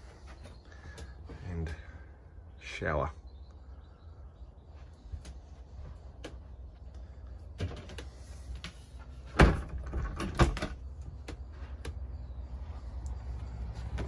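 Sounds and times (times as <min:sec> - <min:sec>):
door shutting knocks: 0:09.3 - 0:10.8.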